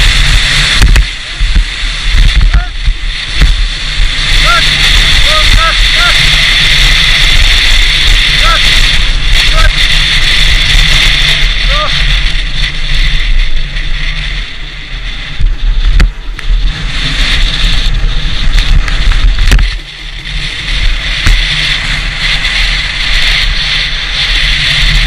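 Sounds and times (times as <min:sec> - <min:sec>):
sled runners scraping on snow: 0:00.0 - 0:25.0
wind buffeting microphone: 0:00.0 - 0:25.0.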